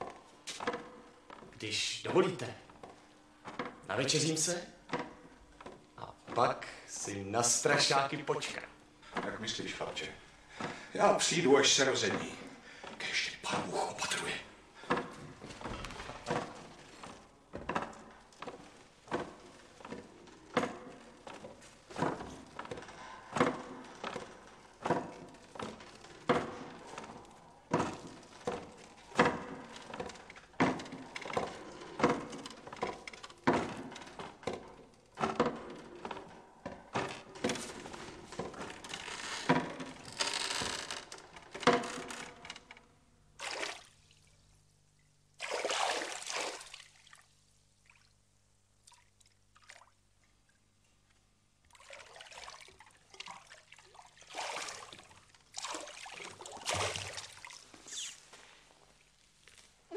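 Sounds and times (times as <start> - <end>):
water splashing and sloshing: 8.5 - 42.6, 43.4 - 50.8, 51.6 - 59.8
water pouring: 45.4 - 48.1, 51.7 - 58.0
water dripping: 48.8 - 50.6.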